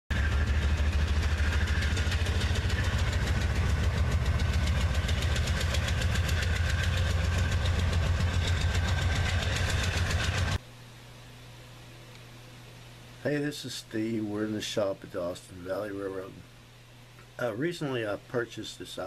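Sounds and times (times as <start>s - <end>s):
diesel locomotive engine rumble: 0.1s - 10.6s.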